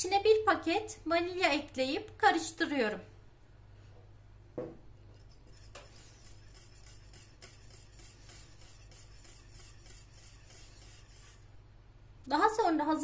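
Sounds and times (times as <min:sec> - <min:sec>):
whisk scraping saucepan: 0:05.0 - 0:11.6.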